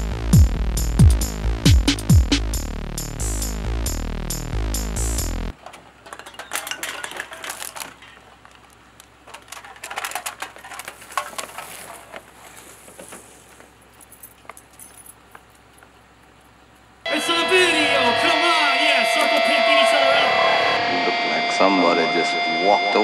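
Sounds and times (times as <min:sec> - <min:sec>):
cans clattering onto pavement: 0:05.5 - 0:12.3.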